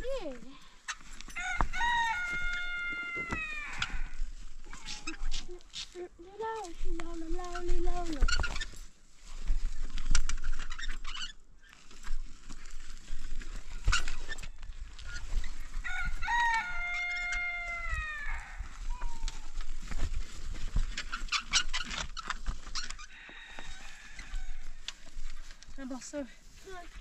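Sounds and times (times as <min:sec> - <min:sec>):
fowl calling: 0:00.9 - 0:05.2, 0:15.8 - 0:19.5.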